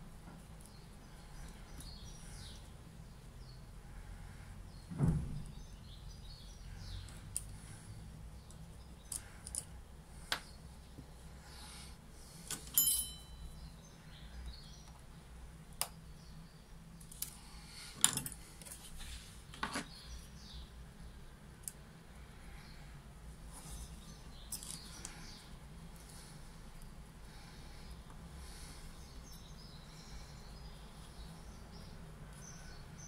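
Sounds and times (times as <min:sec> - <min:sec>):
small metal parts clicking: 0:08.5 - 0:09.7, 0:24.5 - 0:25.2
metal part ringing: 0:12.7 - 0:13.5.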